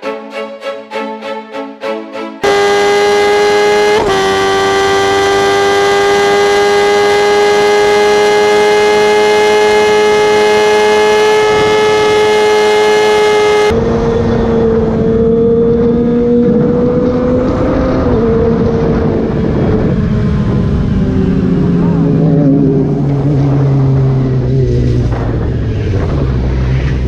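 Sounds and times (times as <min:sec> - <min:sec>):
motorcycle engine high-pitched wail: 0:02.4 - 0:25.2
motorcycle engine revving high: 0:02.4 - 0:27.0
wind noise: 0:11.0 - 0:12.3, 0:13.7 - 0:27.0.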